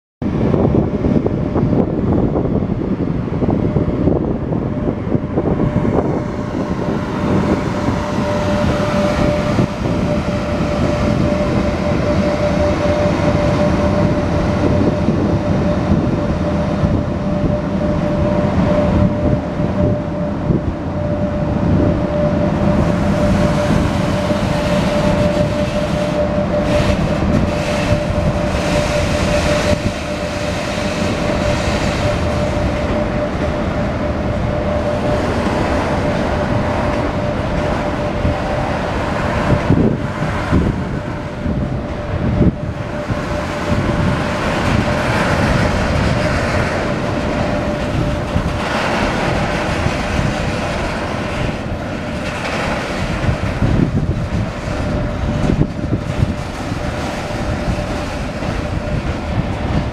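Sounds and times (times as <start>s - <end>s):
steady locomotive whine: 0.2s - 59.9s
wagon wheels rumbling on rails: 21.0s - 59.9s.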